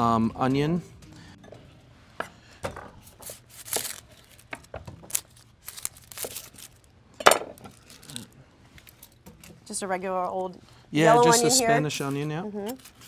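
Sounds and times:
onion skin crackling: 3.3 - 6.9.

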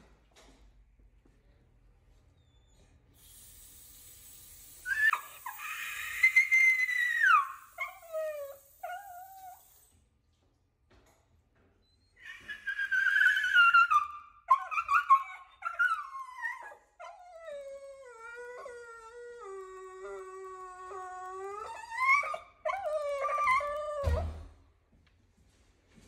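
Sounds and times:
dog whining and howling: 4.9 - 9.8, 12.0 - 24.4.

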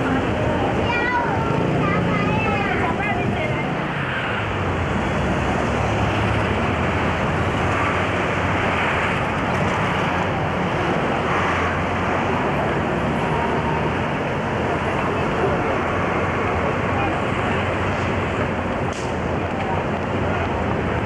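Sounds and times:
road traffic: 0.0 - 21.0.

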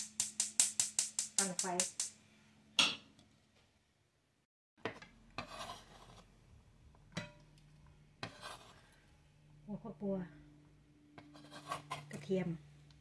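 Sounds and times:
knife scraping on cutting board: 5.4 - 6.3, 8.2 - 8.8, 11.2 - 12.2.

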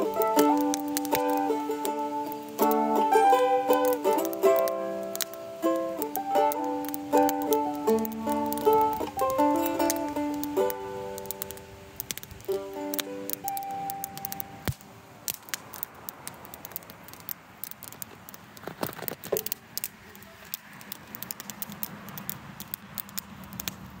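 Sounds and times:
mandolin note ringing: 0.0 - 11.8, 12.5 - 14.7
campfire crackling: 0.0 - 24.0.

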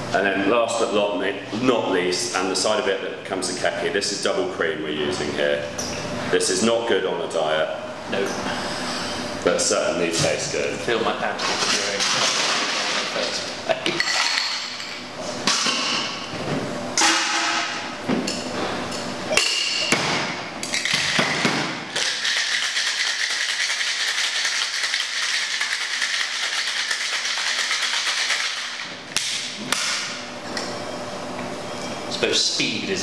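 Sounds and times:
ice rattling in shaker tin: 21.9 - 28.8.

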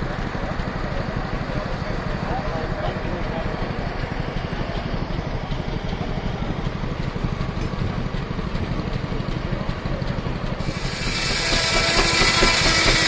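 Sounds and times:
steam engine mechanical beat: 10.6 - 13.0.

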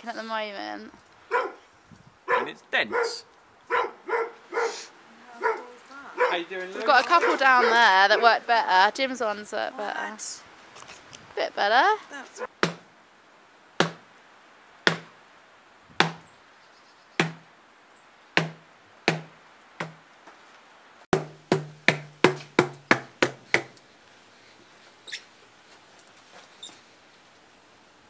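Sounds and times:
pipe knocking against ground: 18.4 - 20.0, 21.1 - 23.8.

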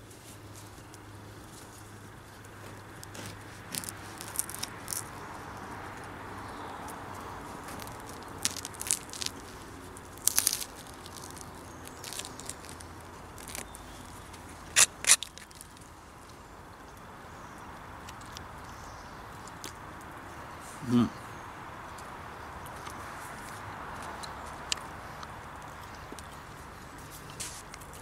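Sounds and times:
knife crunching through bread crust: 2.6 - 5.1, 7.6 - 15.8.

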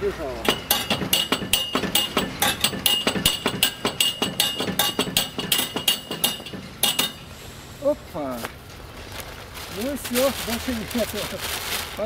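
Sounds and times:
knocking on wooden gate: 0.4 - 7.2.

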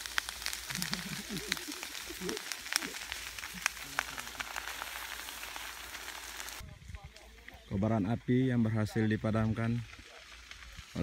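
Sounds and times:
water spray hissing: 0.0 - 6.6
burning ground crackling: 0.0 - 11.0.

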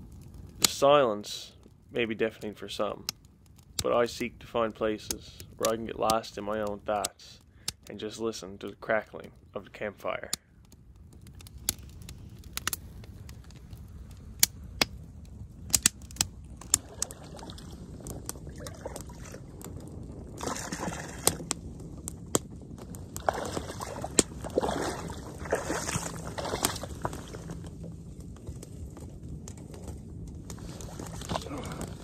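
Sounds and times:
campfire crackling and popping: 0.0 - 32.0
water sloshing from wading: 16.7 - 19.5, 20.4 - 21.5, 23.1 - 28.1.

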